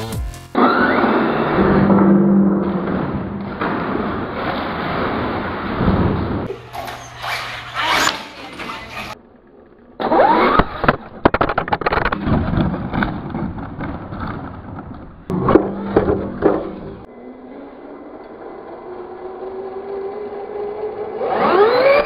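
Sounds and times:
toy truck crashing: 10.0 - 17.1
electric motor whining: 15.4 - 22.0.

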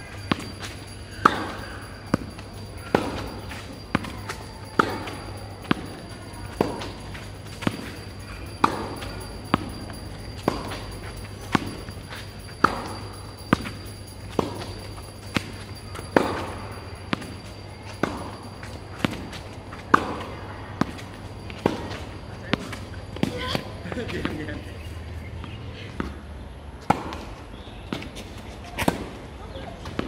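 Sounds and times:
racket hitting tennis ball: 0.3 - 9.8, 10.4 - 12.9, 13.5 - 23.7, 26.8 - 27.3.

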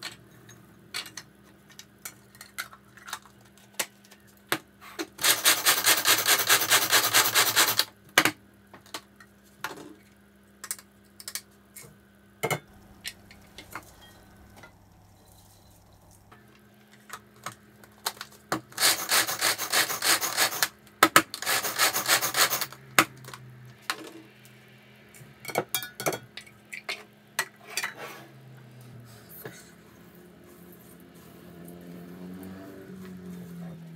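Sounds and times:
food chopper rattling and grinding: 5.2 - 7.9, 18.0 - 22.8.

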